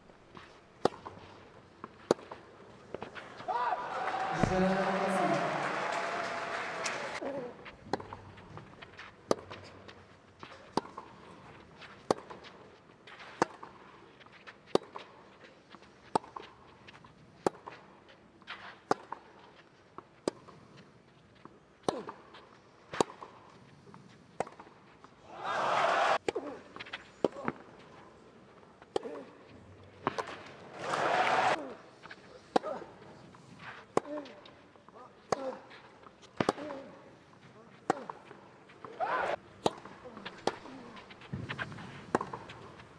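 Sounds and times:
crowd noise: 3.1s - 7.2s, 25.2s - 26.2s, 30.4s - 31.6s
tennis racket hits: 11.8s - 15.1s, 35.2s - 37.0s, 37.8s - 42.9s.

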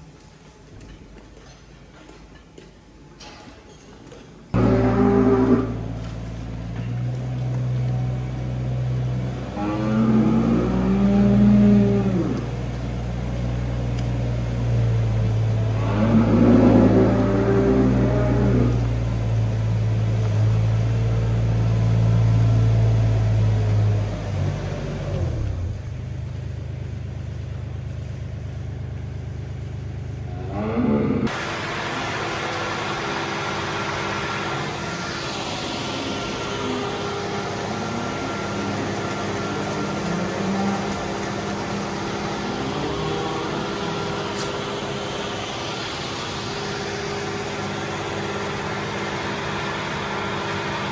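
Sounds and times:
steady machine hum: 4.5s - 50.9s
loader engine running: 4.6s - 50.9s.

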